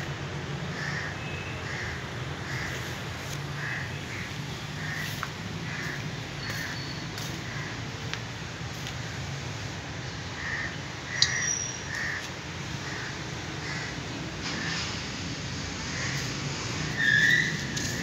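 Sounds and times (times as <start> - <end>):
birds calling: 3.6 - 8.0, 10.1 - 14.8, 15.8 - 18.0.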